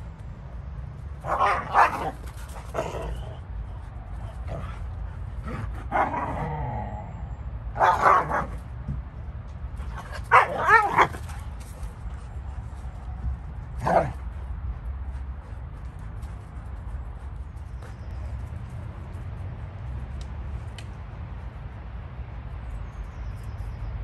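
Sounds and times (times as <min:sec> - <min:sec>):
dogs barking and yipping: 0:01.2 - 0:06.5, 0:07.7 - 0:08.7, 0:09.8 - 0:12.0, 0:13.8 - 0:14.2.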